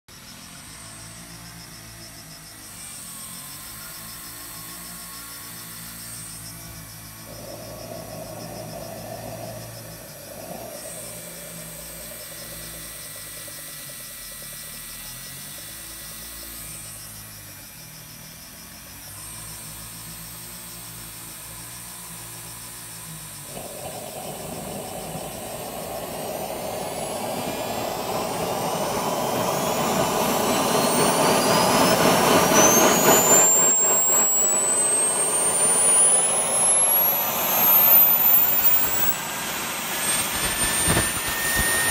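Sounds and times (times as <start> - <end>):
jet turbine whir: 0.1 - 17.8, 19.2 - 41.9
jet turbine rushing whine: 5.5 - 17.2, 22.8 - 41.9.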